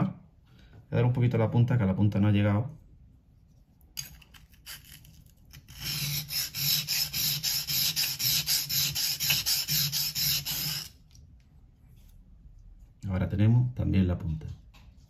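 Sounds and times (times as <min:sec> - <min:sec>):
knife scraping on whetstone: 0:04.0 - 0:11.0.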